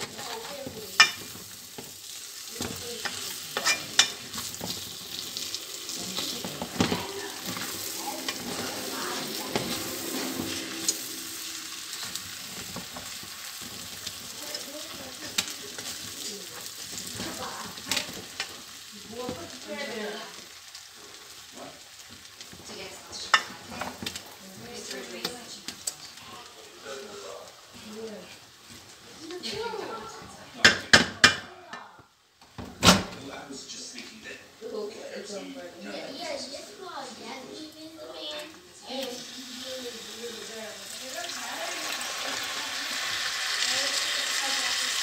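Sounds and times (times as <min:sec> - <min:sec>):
rice sizzling: 0:00.0 - 0:45.0
wooden spoon scraping metal pot: 0:02.6 - 0:15.0.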